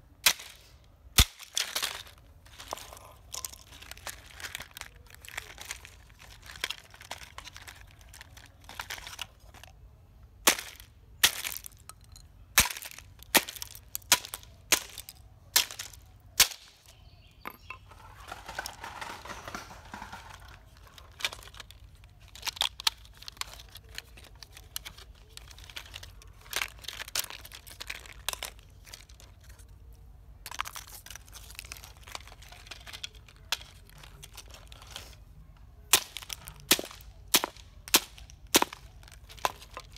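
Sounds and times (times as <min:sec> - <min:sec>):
plastic toy cracking apart: 0:00.3 - 0:09.7, 0:10.4 - 0:11.9, 0:12.6 - 0:16.9, 0:18.3 - 0:29.8, 0:30.4 - 0:35.2, 0:35.8 - 0:39.9
plastic pieces knocking on concrete: 0:10.5 - 0:29.7, 0:35.9 - 0:39.9
rustling: 0:17.7 - 0:39.9.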